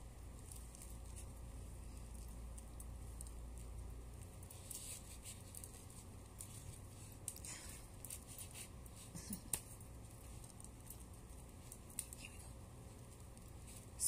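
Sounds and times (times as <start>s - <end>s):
hair rustling: 0.0s - 14.0s.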